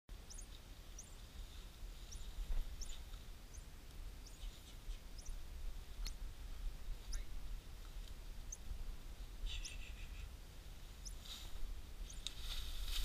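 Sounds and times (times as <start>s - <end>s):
small bird chirping: 0.2s - 1.3s, 2.0s - 6.2s, 6.9s - 7.5s, 8.4s - 8.7s, 9.4s - 10.3s, 11.0s - 11.3s, 12.0s - 12.3s.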